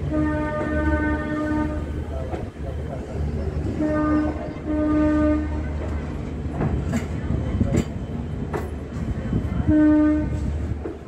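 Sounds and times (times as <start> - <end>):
train horn blasts: 0.0 - 2.0, 3.6 - 5.9, 9.4 - 10.8
train rumbling: 0.0 - 11.0.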